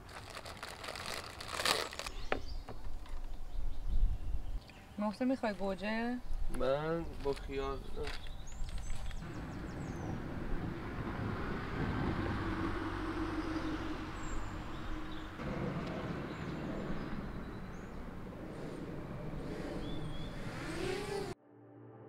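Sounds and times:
vehicle passing: 9.2 - 21.4.

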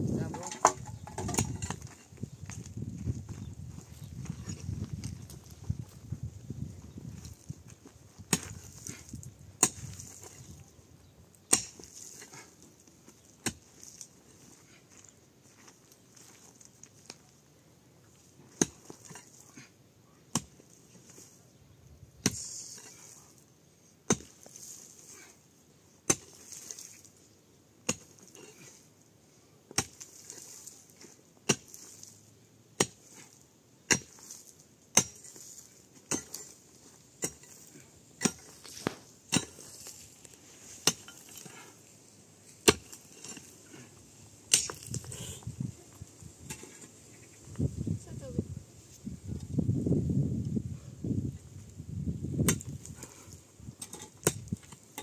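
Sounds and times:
hand tool chopping: 37.2 - 40.2, 42.6 - 43.5.

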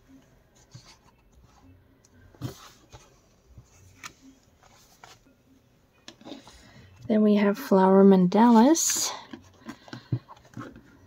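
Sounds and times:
book rustling: 2.3 - 5.3.

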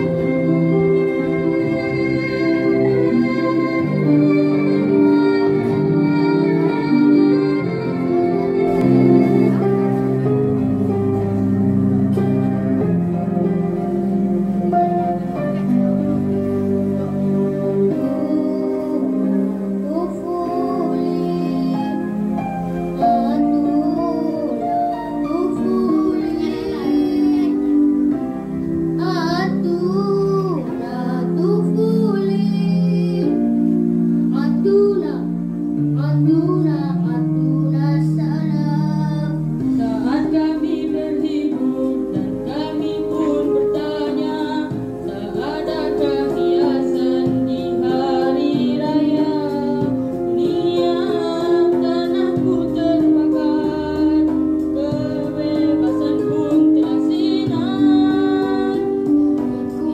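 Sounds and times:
steady held chords: 0.0 - 59.9
high singing voice with vibrato: 22.9 - 28.0, 34.3 - 59.9.

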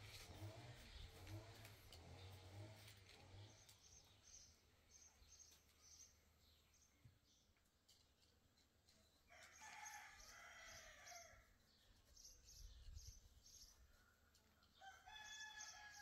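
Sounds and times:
small bird chirping: 3.2 - 16.0
faint rooster crowing: 9.3 - 11.6, 13.9 - 16.0.

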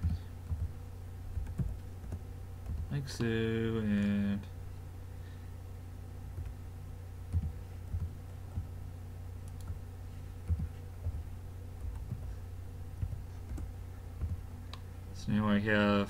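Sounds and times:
steady low hum: 0.0 - 16.0
keyboard keys clicking: 1.4 - 3.0, 7.3 - 8.7, 9.4 - 9.8, 10.5 - 11.2, 11.8 - 12.3, 13.0 - 14.4.

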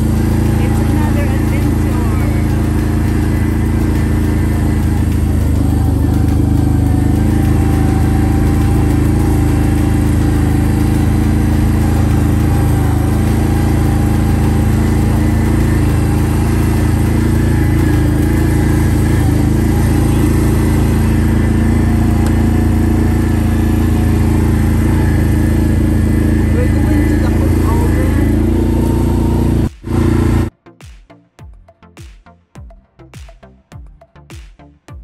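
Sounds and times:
off-road vehicle engine running: 0.0 - 30.5.

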